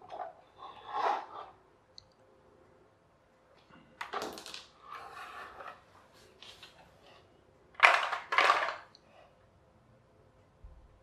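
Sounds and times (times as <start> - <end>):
toy tractor clatter on wood floor: 7.8 - 8.9.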